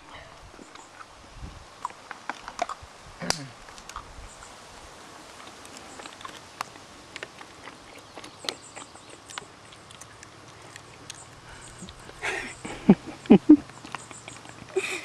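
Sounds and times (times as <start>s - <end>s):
low hiss: 0.0s - 7.4s.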